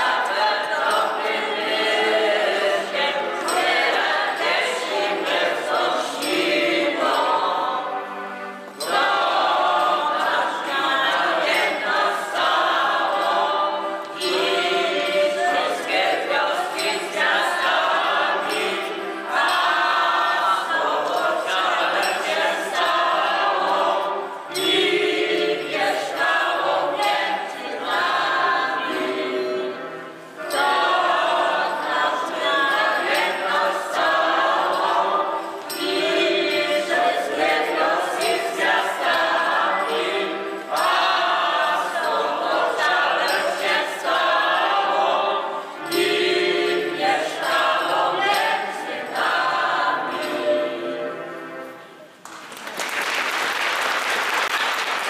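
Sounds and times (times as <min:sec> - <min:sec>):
choir singing a carol: 0:00.0 - 0:52.2.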